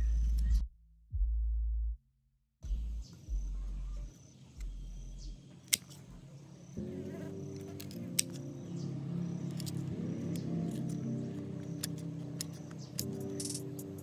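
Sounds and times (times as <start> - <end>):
soft background music: 2.7 - 14.0
sharp clicks: 9.5 - 14.0.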